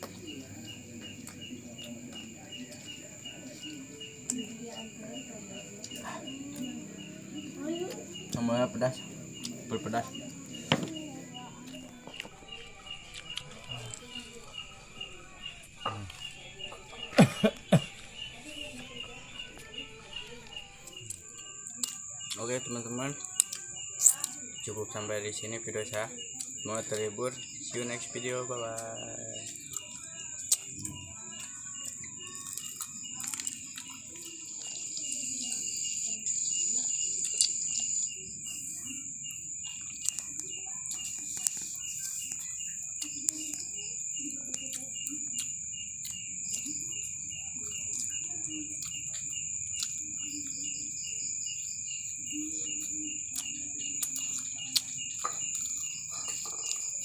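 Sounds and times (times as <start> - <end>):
insects chirping: 0.0 - 57.0.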